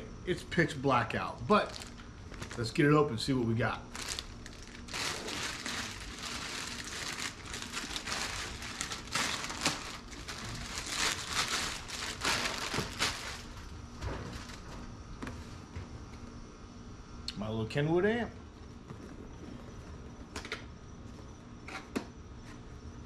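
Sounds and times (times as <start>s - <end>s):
plastic mailer crinkling: 1.3s - 3.0s, 3.9s - 13.7s
plastic tearing: 1.4s - 2.7s, 3.9s - 13.7s.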